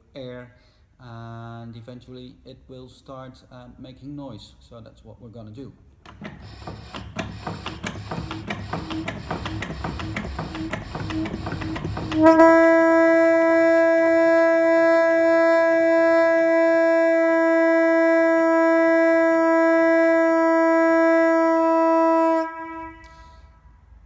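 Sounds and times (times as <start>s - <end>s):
crank mechanism clicking: 6.0s - 12.4s
fog horn steady note: 12.1s - 23.8s.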